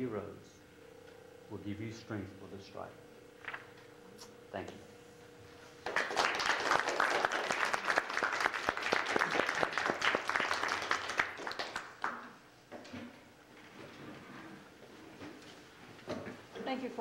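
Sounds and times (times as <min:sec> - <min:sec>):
audience applauding: 0:05.8 - 0:12.3.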